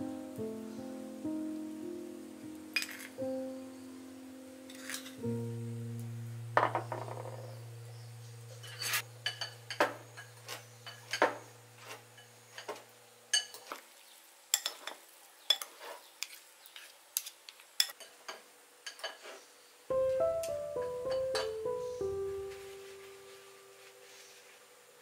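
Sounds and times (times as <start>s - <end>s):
low hum: 0.0s - 11.0s
spoon clinking and scraping bowl: 2.8s - 3.1s, 8.5s - 13.8s, 14.5s - 19.4s.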